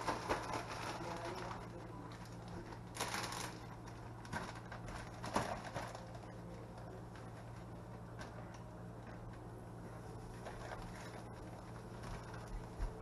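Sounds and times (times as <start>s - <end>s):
plastic bag crinkling: 0.0s - 8.6s
steady low hum: 0.0s - 13.0s.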